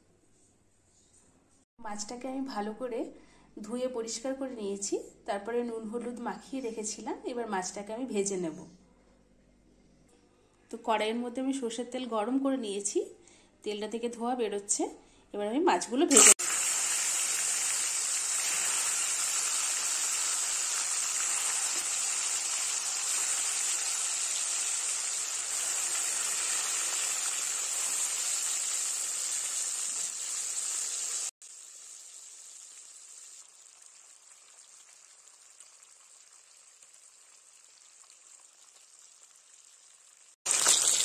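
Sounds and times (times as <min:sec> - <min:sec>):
fish sizzling in hot oil: 0:16.1 - 0:41.0.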